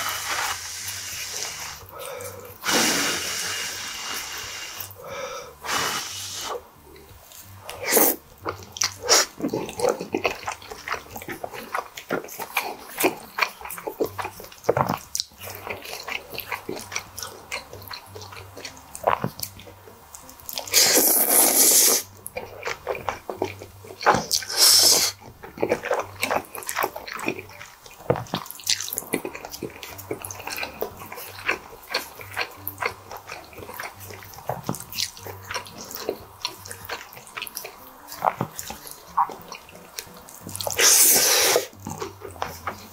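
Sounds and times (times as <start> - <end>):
loud slurps: 0.0 - 1.9, 2.6 - 5.0, 5.6 - 6.7, 7.7 - 8.2, 9.0 - 9.6, 20.6 - 22.1, 24.1 - 25.2, 40.6 - 41.8
wet chewing and mouth smacks: 5.6 - 42.9.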